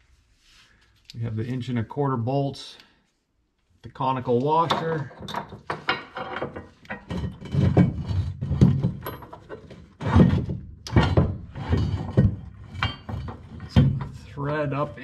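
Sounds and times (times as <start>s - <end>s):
metal clunks and clinks: 4.6s - 15.0s.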